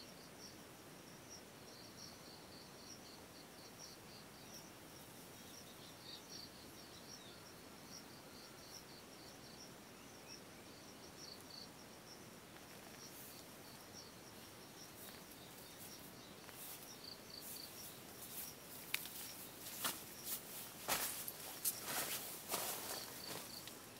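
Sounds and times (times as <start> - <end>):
insects chirping: 0.0 - 23.9
rustling clicking footsteps: 15.0 - 23.8.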